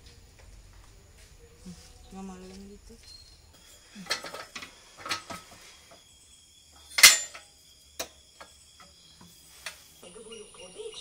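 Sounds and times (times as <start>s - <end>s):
metal parts clinking and knocking: 4.0s - 5.6s, 6.9s - 7.5s.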